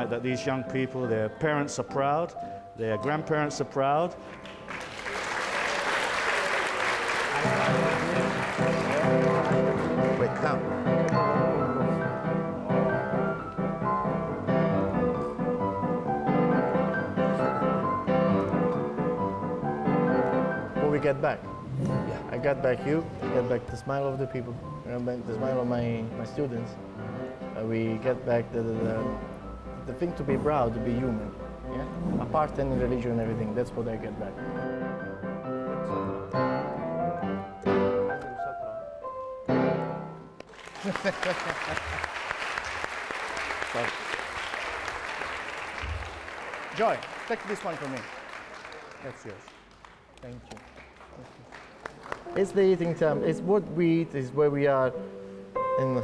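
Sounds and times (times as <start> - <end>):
piano played four hands: 7.0 - 40.4, 52.2 - 56.0.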